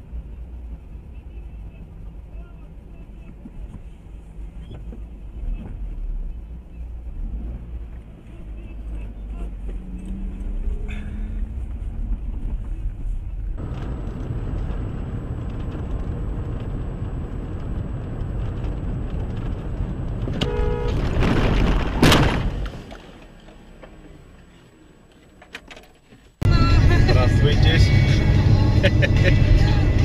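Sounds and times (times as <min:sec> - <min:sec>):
car interior road noise: 0:00.0 - 0:30.0
car horn honk: 0:20.4 - 0:21.1.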